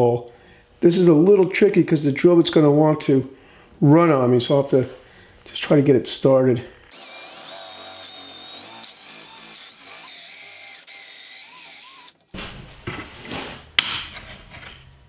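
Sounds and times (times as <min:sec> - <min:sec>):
cordless drill boring wood: 0:06.9 - 0:12.2
knocks and handling noises: 0:12.2 - 0:14.9.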